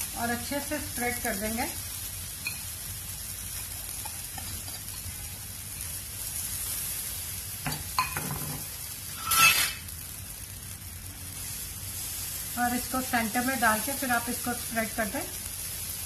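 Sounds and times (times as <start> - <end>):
batter sizzling in waffle maker: 0.0 - 16.0.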